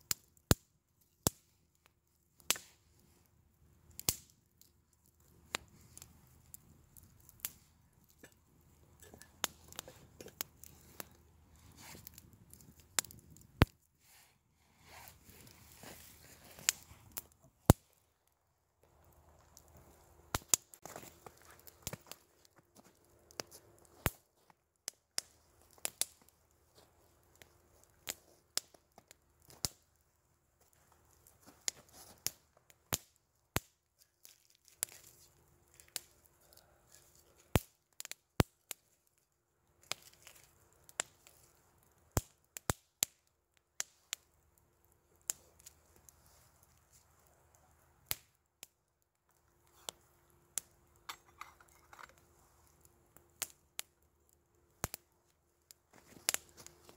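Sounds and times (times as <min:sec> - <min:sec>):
campfire crackling and popping: 0:00.0 - 0:56.9
soft rustling: 0:14.0 - 0:17.1.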